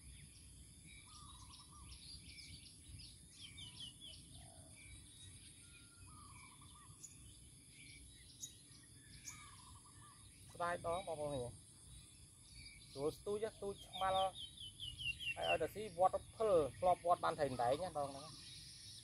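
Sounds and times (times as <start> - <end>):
small birds chirping: 0.0 - 19.0
steady high-pitched hiss: 5.0 - 19.0.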